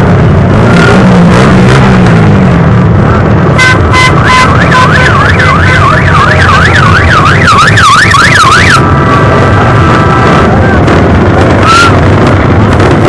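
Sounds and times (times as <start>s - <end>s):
motorcycle engines rumbling: 0.0s - 13.0s
electronic siren beeping and yelping: 3.6s - 8.9s.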